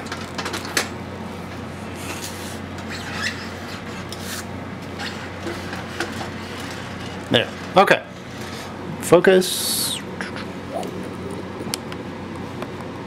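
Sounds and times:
steady low hum: 8.7 - 13.0.

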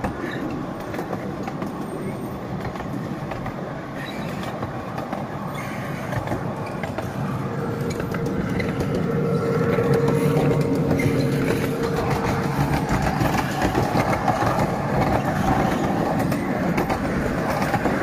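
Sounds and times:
miniature train wheels on rails: 0.0 - 18.0.

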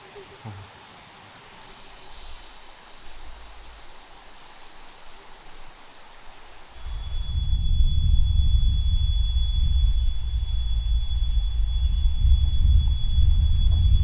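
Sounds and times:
insects chirping: 0.0 - 14.0
faint low rumble: 6.8 - 14.0.

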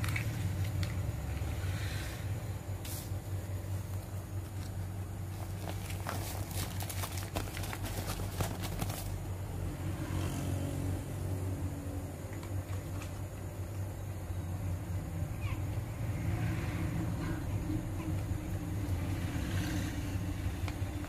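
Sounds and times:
steady low hum: 0.0 - 21.0
plastic bag crinkling: 4.5 - 9.3.

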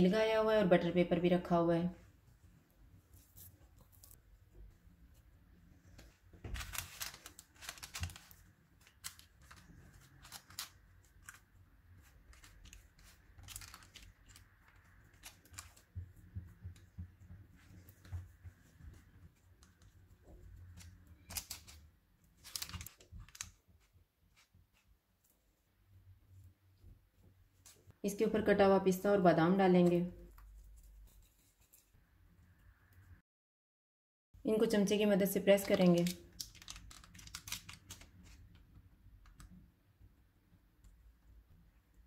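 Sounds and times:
paper rustling: 5.9 - 16.1, 20.7 - 21.8, 22.4 - 24.9, 35.7 - 38.5.

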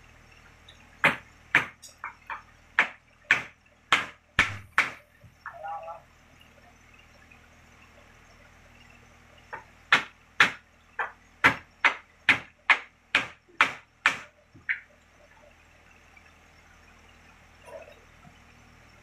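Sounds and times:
sharp knocks: 1.0 - 5.0, 9.5 - 14.9.

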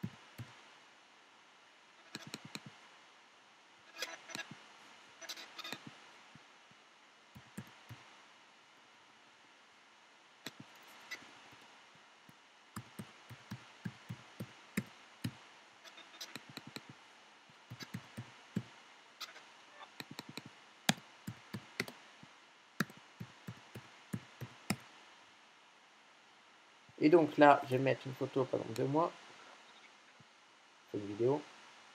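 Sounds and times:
keyboard key clicks: 2.2 - 2.7, 16.3 - 16.9, 20.0 - 22.0.

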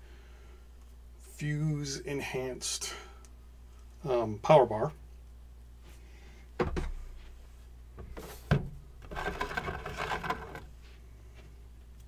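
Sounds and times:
scraping and rustling: 7.2 - 11.0.

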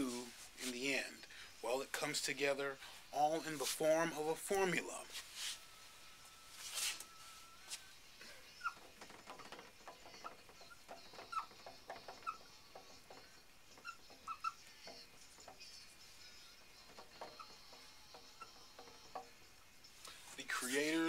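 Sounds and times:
marker squeaking on board: 8.4 - 21.0.

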